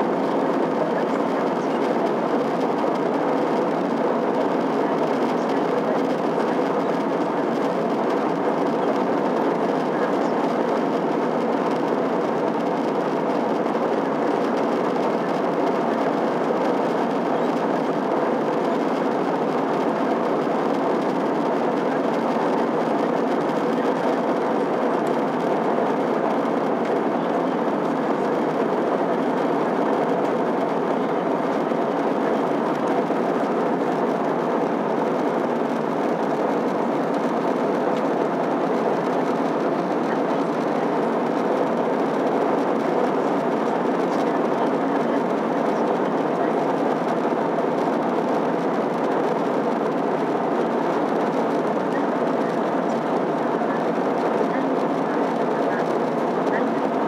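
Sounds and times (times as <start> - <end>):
jet engine hum: 0.0 - 57.0.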